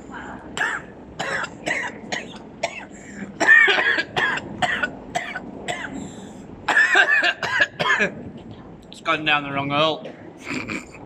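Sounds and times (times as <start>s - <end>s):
man coughing: 0.6s - 6.0s, 6.7s - 8.2s, 10.0s - 11.0s.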